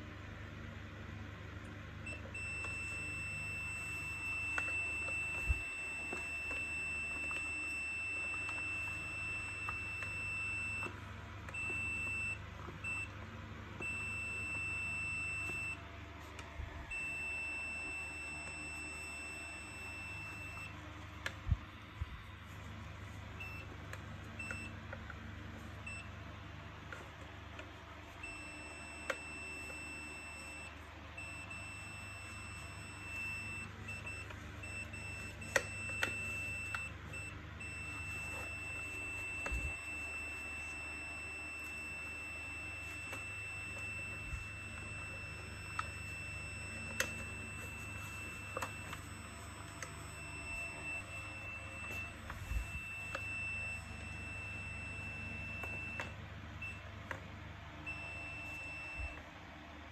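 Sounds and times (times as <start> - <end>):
multimeter continuity buzzer beeping: 2.0 - 15.9, 16.9 - 22.6, 23.3 - 57.2, 57.8 - 59.3.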